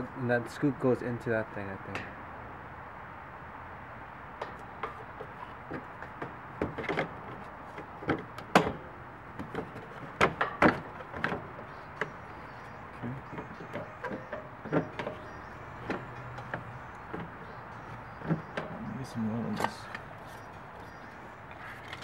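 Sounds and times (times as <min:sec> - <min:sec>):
plastic panel clacking and knocking: 0:04.4 - 0:12.2, 0:13.2 - 0:18.8.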